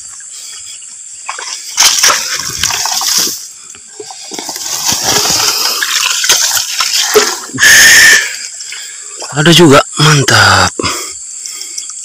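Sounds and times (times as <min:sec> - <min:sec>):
water splashing and sloshing: 0:00.0 - 0:09.2.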